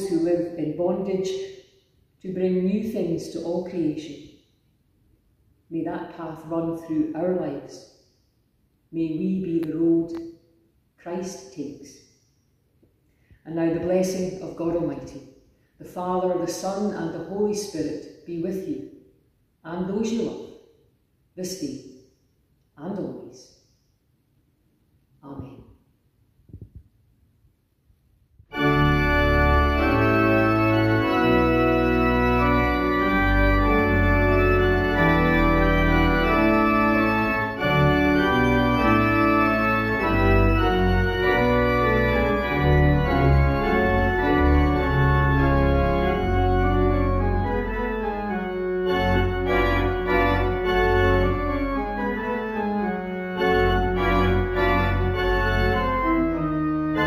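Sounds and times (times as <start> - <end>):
church organ music: 0.0 - 1.5, 28.5 - 57.0.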